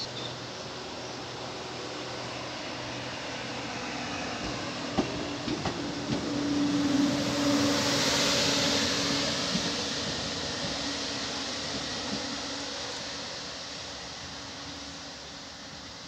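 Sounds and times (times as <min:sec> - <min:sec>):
train motor hum: 0:00.0 - 0:16.0
train wheels clicking over rail joints: 0:04.4 - 0:07.4, 0:08.6 - 0:12.5.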